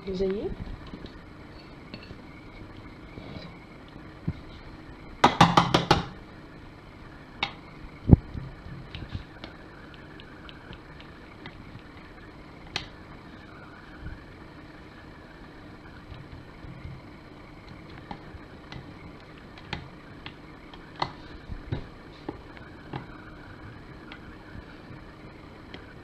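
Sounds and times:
low hum: 0:00.0 - 0:26.0
dough rustling: 0:08.5 - 0:14.3.

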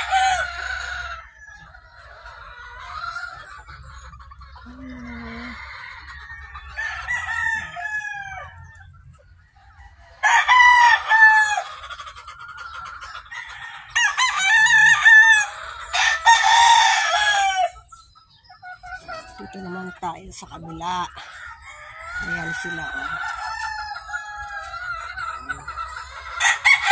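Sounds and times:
rooster crowing: 0:00.0 - 0:02.0, 0:04.9 - 0:08.9, 0:09.8 - 0:11.8, 0:13.3 - 0:17.8, 0:20.8 - 0:26.9
soft clucking calls: 0:17.7 - 0:26.9.

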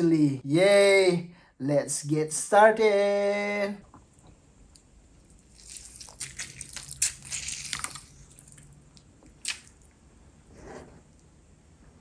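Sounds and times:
lemon being squeezed: 0:05.4 - 0:08.7.

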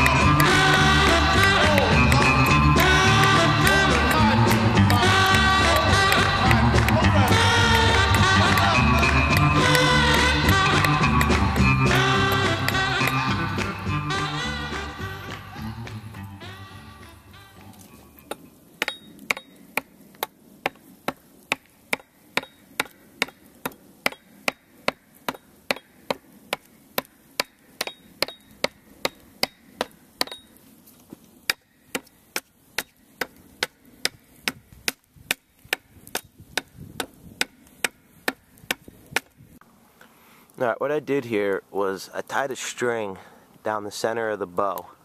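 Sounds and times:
hatchet chopping wood: 0:18.3 - 0:30.6, 0:31.5 - 0:39.4.

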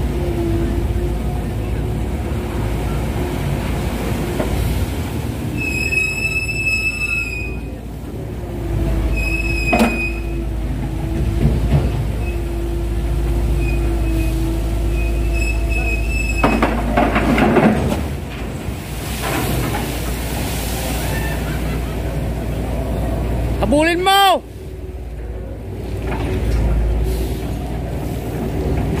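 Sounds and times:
crane machinery humming: 0:00.0 - 0:29.0
water and mud splashing: 0:00.0 - 0:29.0
high metallic squeals: 0:05.5 - 0:07.8, 0:09.0 - 0:10.5, 0:13.5 - 0:16.6.

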